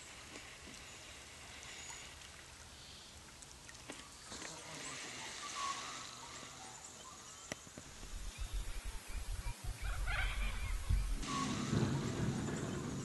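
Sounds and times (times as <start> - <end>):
steady hiss: 0.0 - 3.6, 4.2 - 13.0
faint chirps: 4.0 - 12.7.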